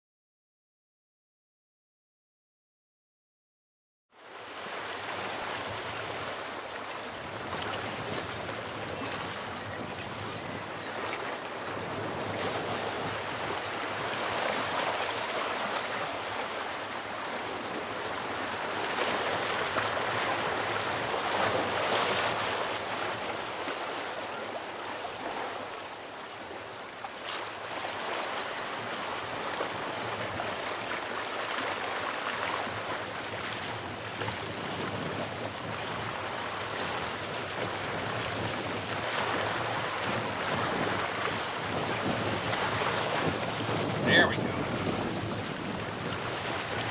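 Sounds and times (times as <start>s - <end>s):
surf breaking on rocks: 36.0s - 46.9s.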